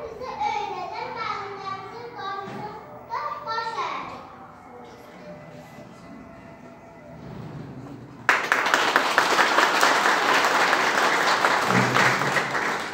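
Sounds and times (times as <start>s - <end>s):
audience applauding: 8.3s - 12.9s.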